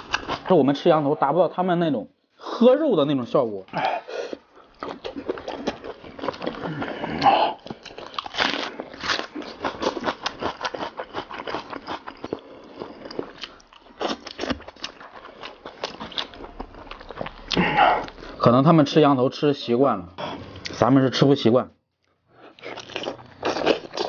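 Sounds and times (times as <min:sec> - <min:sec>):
wet chewing and smacking: 0:03.7 - 0:18.4, 0:22.0 - 0:24.0.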